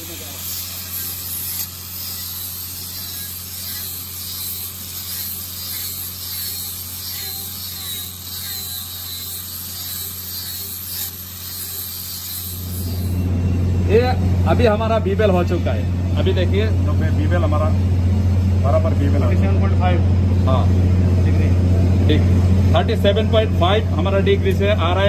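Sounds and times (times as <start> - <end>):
angle grinder grinding steel pipe: 0.0 - 13.3.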